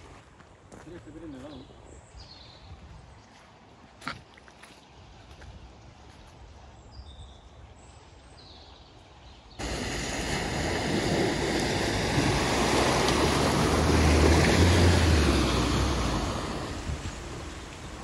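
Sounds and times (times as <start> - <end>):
car engine hum: 9.6 - 18.0
car splashing through floodwater: 9.6 - 18.0.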